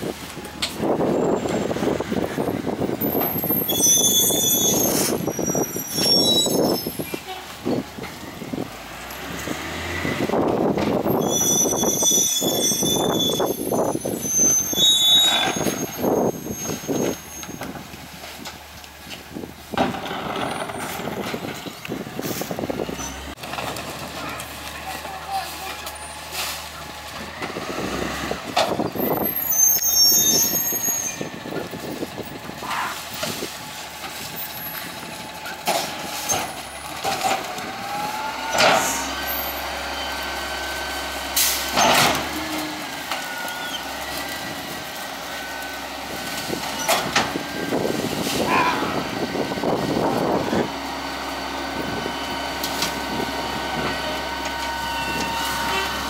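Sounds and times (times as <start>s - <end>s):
garbage truck engine rumble: 0.0s - 56.0s
branches crunching in hopper: 17.7s - 56.0s.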